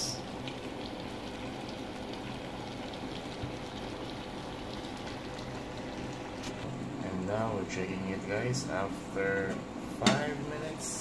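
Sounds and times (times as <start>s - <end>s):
sauce bubbling in a pot: 0.0s - 10.8s.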